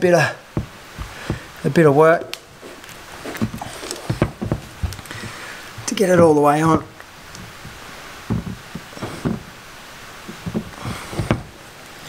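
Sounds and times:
soft knocks and rubbing: 0.5 - 9.6, 10.2 - 11.6.

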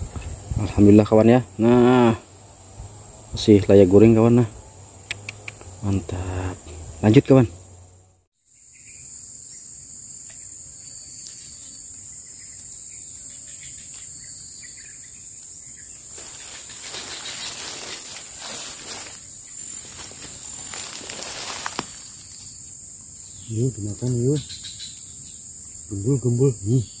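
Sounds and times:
insects chirring: 0.0 - 27.0
grass and leaves rustling: 10.8 - 25.3.

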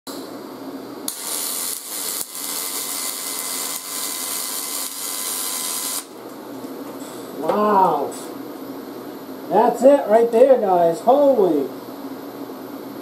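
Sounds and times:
welding arc hissing: 1.1 - 7.4.

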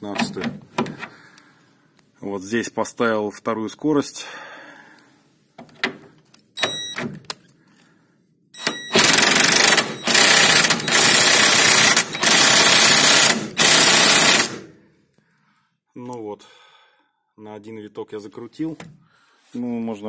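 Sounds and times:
impact wrench hammering: 8.6 - 14.7.

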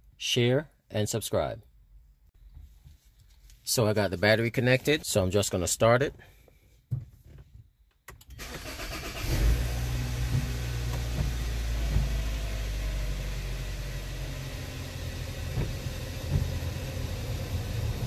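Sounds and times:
car engine starting and idling: 8.1 - 18.0.

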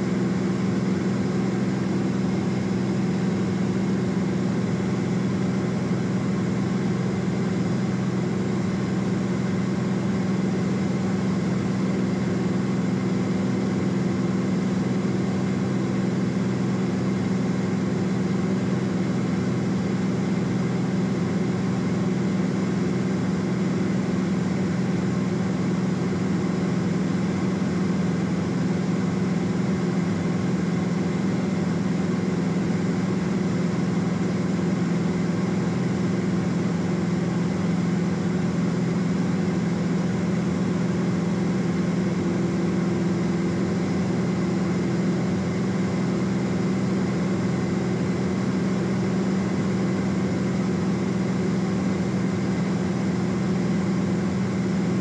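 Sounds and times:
aircraft engine drone in cabin: 0.0 - 55.0.

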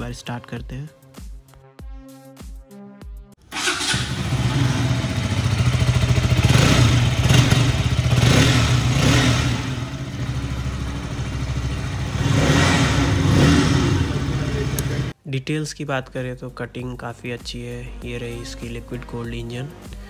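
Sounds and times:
motorcycle engine idling and revving: 3.4 - 15.1.

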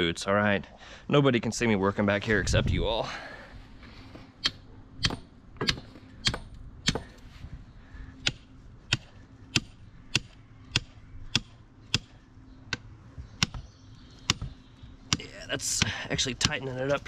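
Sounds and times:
sledgehammer striking steel rebar: 4.4 - 7.2.

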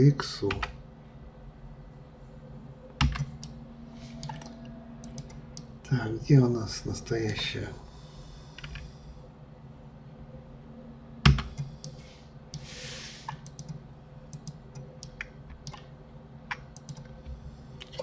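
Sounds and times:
low steady hum: 0.0 - 18.0
keyboard keys and mouse clicks: 0.5 - 0.8, 3.0 - 5.7, 8.6 - 8.9, 11.2 - 15.9, 16.5 - 18.0.

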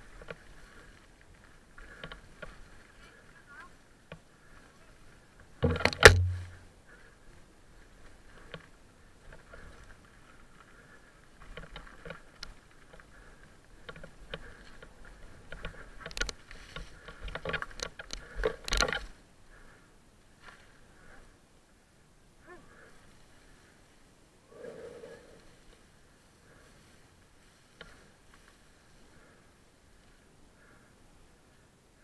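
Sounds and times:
mountain bike rattling on dirt trail: 0.0 - 21.3, 26.4 - 30.8
bike jolt with low thump: 5.6 - 6.6.

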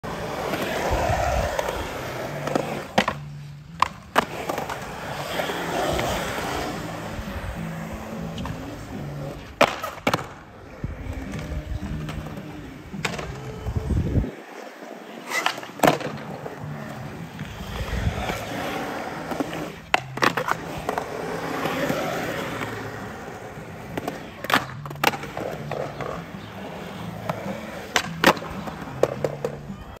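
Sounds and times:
skateboard wheels rolling on concrete: 0.0 - 30.0
skateboard clacks and knocks: 15.3 - 16.9, 19.3 - 22.8, 23.8 - 30.0.

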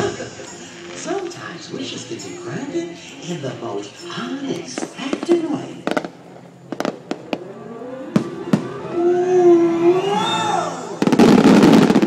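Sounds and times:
firework crackling: 0.0 - 12.0
firework pops: 4.6 - 7.4
wavering tone: 7.1 - 11.1.

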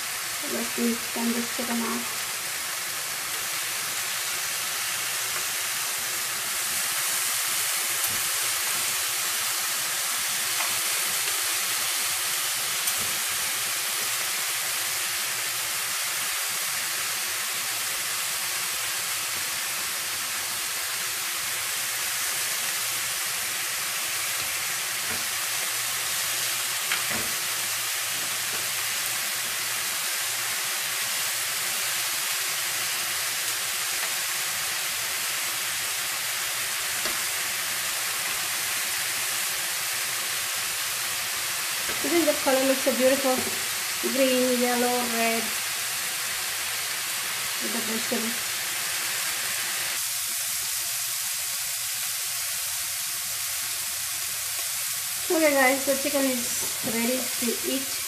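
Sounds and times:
kebabs sizzling in grill pan: 0.0 - 58.0.

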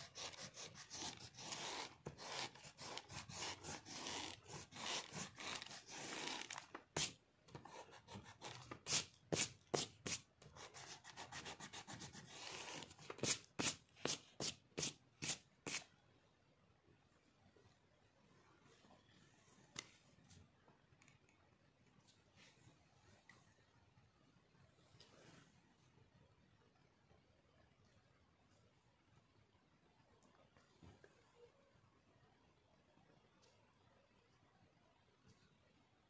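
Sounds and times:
eraser rubbing on paper: 0.0 - 15.8.

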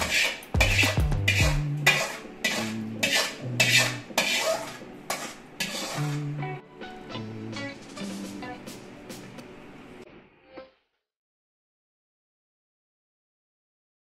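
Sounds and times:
background music with beat: 0.0 - 2.7, 6.0 - 9.5
metal ladle clinking and scraping: 0.0 - 6.3.

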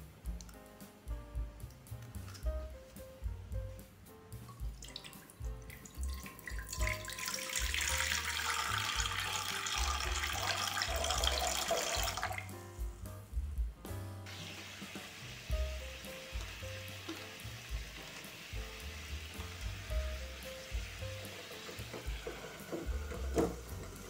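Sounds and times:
background music: 0.0 - 24.0
water poured into frying pan: 4.8 - 12.5, 14.3 - 24.0.

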